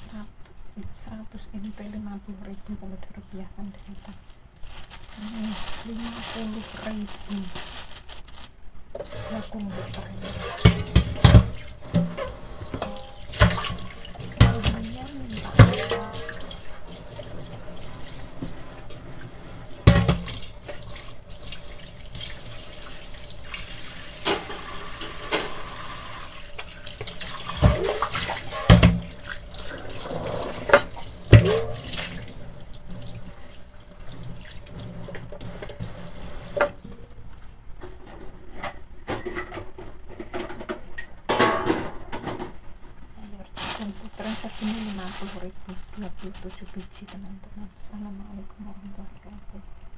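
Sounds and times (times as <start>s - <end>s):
tap water running into sink: 9.0s - 36.8s.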